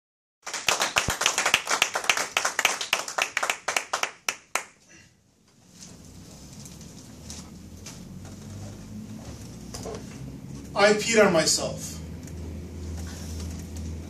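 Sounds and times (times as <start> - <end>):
small audience clapping: 0.4 - 4.9.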